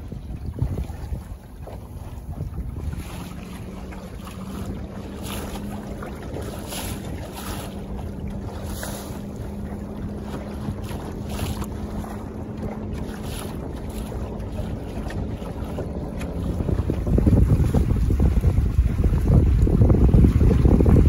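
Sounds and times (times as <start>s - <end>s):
brief splashes: 0.0s - 21.0s
water slapping wooden hull: 0.0s - 21.0s
wind buffeting microphone: 0.0s - 21.0s.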